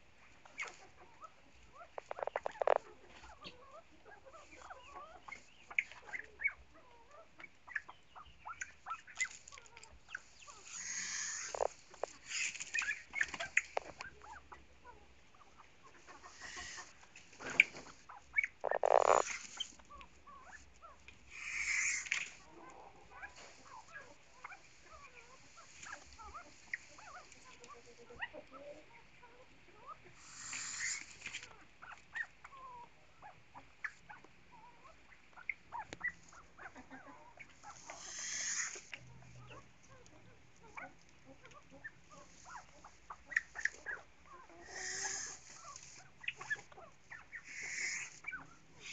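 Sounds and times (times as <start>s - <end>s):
pheasants clucking and chirping: 0.0s - 48.9s.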